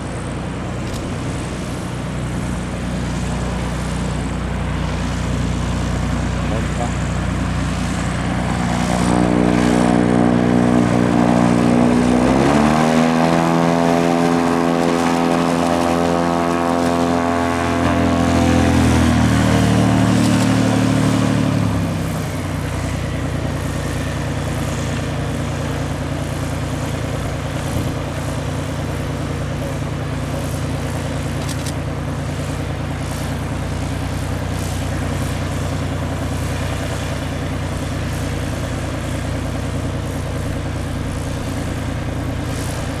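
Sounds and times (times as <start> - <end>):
aircraft piston engine and propeller: 0.0 - 43.0.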